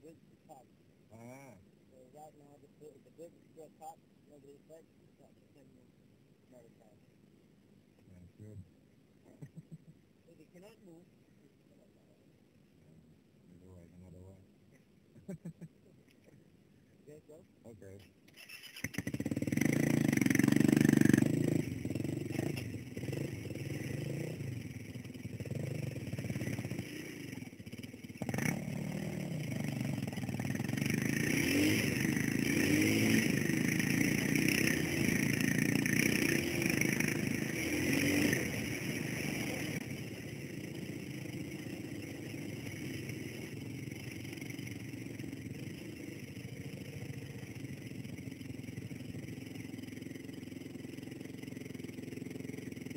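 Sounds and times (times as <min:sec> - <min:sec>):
dirt bike engine revving: 0:18.3 - 0:52.9.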